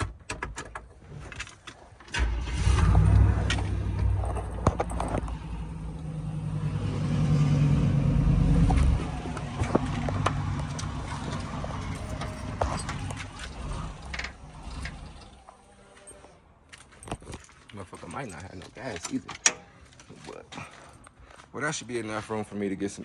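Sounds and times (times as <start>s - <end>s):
car engine starting and revving: 2.1s - 15.5s.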